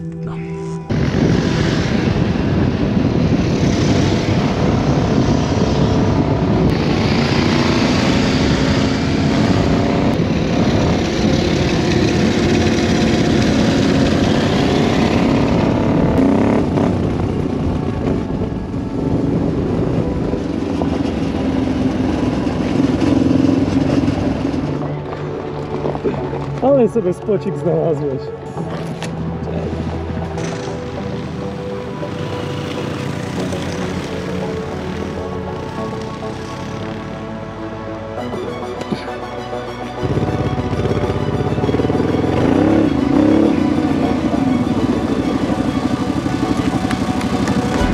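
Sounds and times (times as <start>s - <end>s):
wind rush: 0.9s - 22.5s
motorcycle engine revving: 0.9s - 25.1s, 30.3s - 37.1s, 40.0s - 47.9s.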